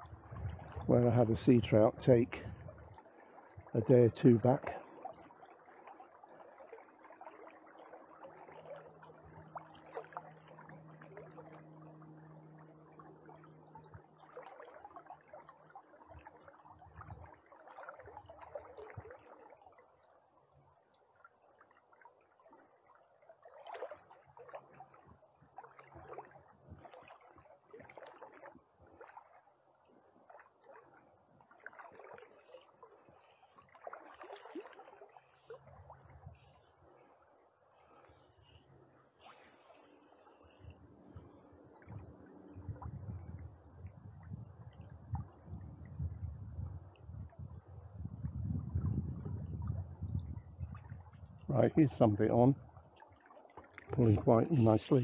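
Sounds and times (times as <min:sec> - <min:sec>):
small splashes: 0:00.0 - 0:45.9, 0:49.5 - 0:55.0
river flowing and gurgling: 0:00.0 - 0:55.0
faint low hum: 0:07.9 - 0:17.3, 0:35.2 - 0:53.0.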